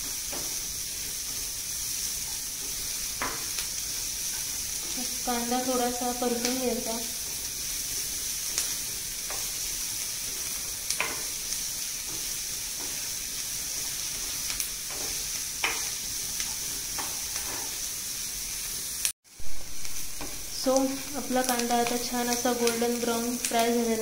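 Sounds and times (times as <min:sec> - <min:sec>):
onions sizzling in a frying pan: 0:00.0 - 0:24.0
spatula scraping and tapping pan: 0:08.4 - 0:13.1, 0:13.7 - 0:17.8.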